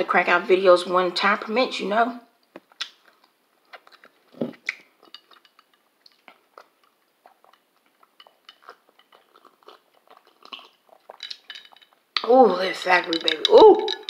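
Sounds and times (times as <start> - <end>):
chewing mouth clicks: 2.4 - 12.3, 13.2 - 14.0.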